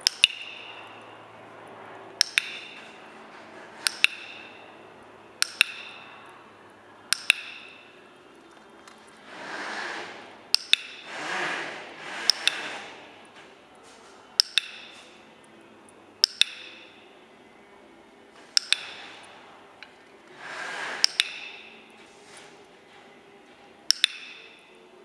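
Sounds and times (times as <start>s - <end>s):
training clicker clicking: 0.0s - 0.8s, 2.2s - 2.9s, 3.8s - 4.6s, 5.4s - 6.2s, 7.1s - 7.8s, 10.5s - 11.6s, 12.2s - 12.9s, 14.4s - 15.1s, 16.2s - 17.0s, 18.4s - 20.0s, 21.0s - 21.8s, 23.9s - 24.6s.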